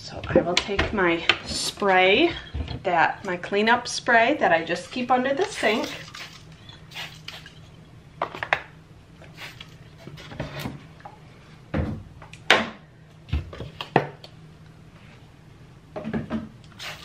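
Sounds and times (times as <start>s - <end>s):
spray bottle squirts: 5.6s - 7.6s, 9.3s - 9.8s, 16.7s - 17.0s.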